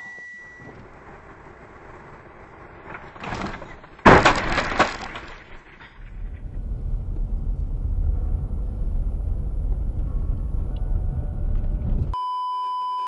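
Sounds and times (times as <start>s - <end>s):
road noise: 0.2s - 12.2s
car crash impact: 0.6s - 10.6s.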